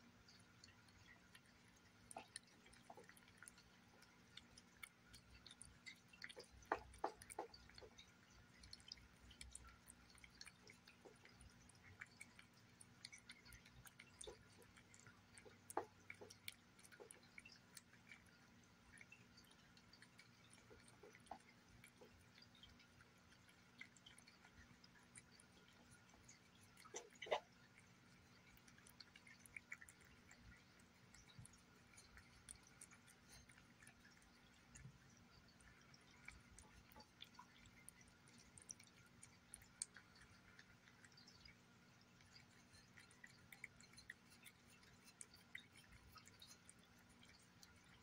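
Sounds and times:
cat eating wet food: 0.0s - 48.0s.

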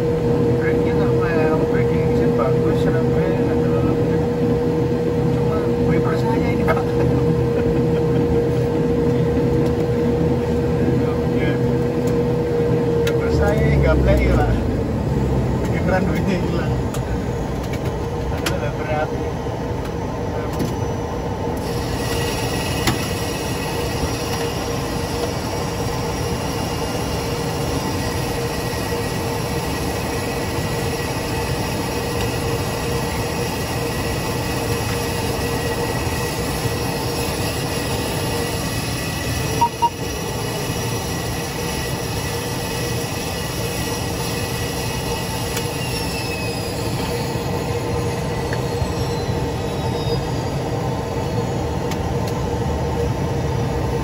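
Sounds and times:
turboprop engine whine and drone: 0.0s - 54.0s
short beeps: 39.6s - 40.0s.

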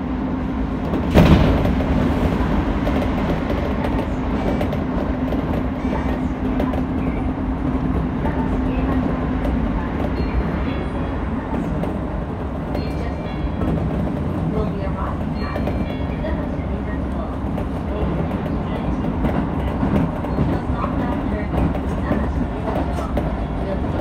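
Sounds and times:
oncoming train passing: 0.0s - 24.0s
train wheels rumbling on rail: 0.0s - 24.0s.

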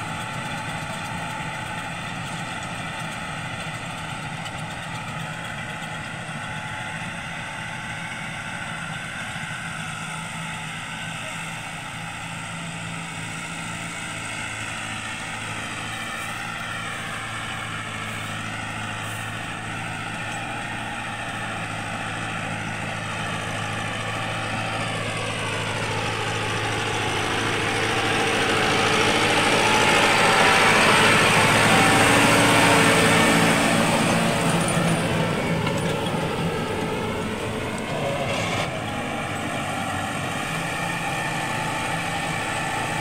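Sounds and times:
tractor diesel engine running: 0.0s - 43.0s.

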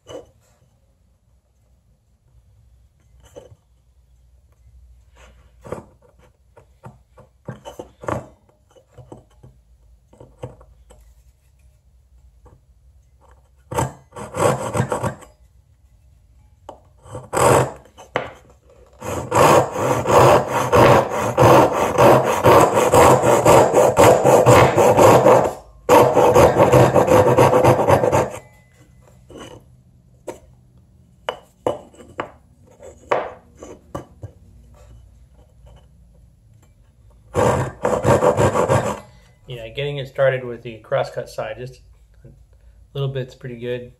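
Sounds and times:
hand saw cutting wood: 13.8s - 15.2s, 17.1s - 18.0s, 18.9s - 28.4s, 37.3s - 39.1s.

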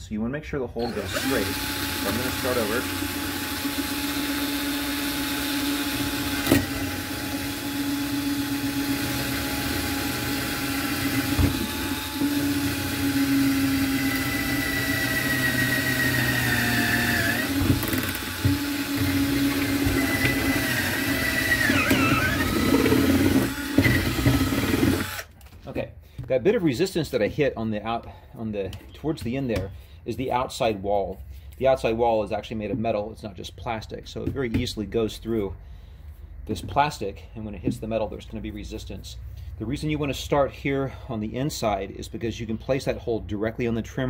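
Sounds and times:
cordless drill boring through plastic: 0.8s - 25.4s.

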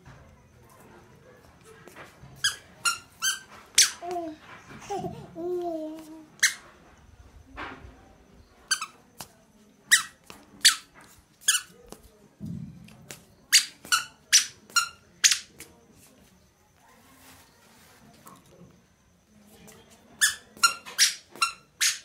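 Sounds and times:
short sharp squeaks: 2.4s - 4.0s, 6.4s - 6.7s, 20.2s - 22.0s
soft low thump: 12.4s - 13.0s.

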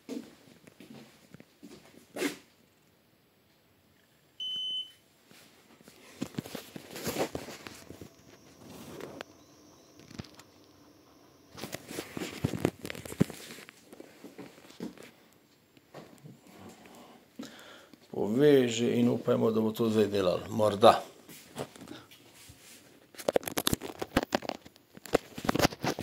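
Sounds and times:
short electronic beep: 4.4s - 5.0s, 7.4s - 12.4s
knocks and rustles of handling: 5.3s - 9.4s, 11.5s - 15.2s.

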